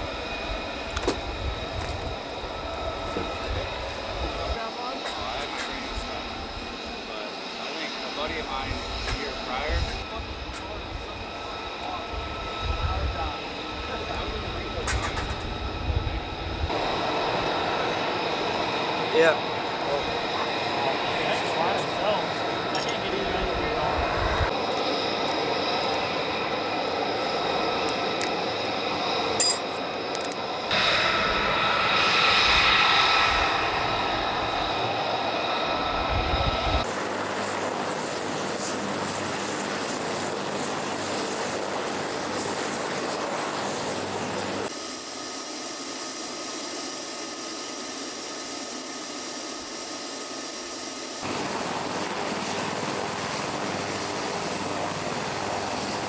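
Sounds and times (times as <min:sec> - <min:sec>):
helicopter turbine whine: 0:00.0 - 0:56.0.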